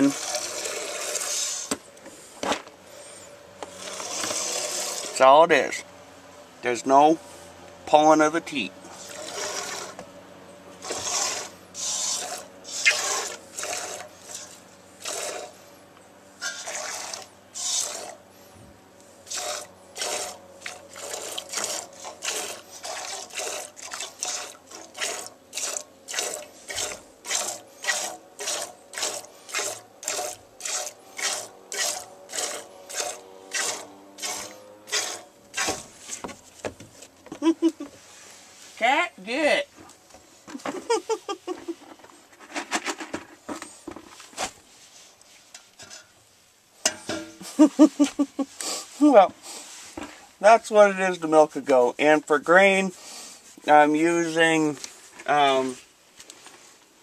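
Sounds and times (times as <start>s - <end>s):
milk squirting into container: 10.8s - 15.5s, 16.4s - 18.2s, 19.3s - 35.8s.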